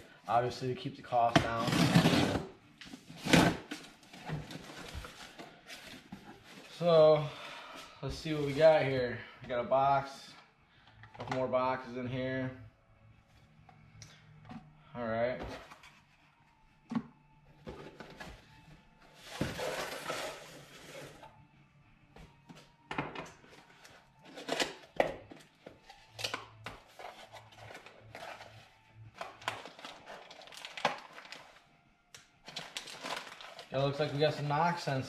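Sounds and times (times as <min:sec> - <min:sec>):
cardboard box rustling and scraping: 0:19.2 - 0:21.3.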